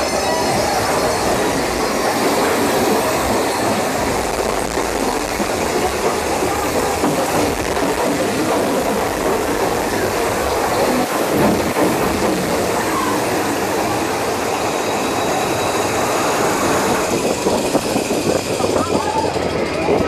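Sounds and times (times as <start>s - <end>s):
rattling wheel clatter: 0.0s - 14.1s
roller coaster rumble: 0.0s - 20.0s.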